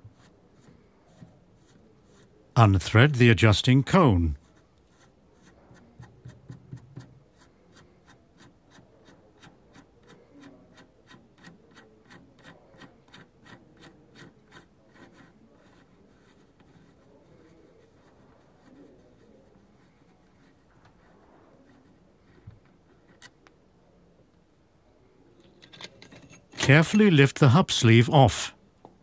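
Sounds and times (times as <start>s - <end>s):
faint rubbing: 4.4s - 23.2s.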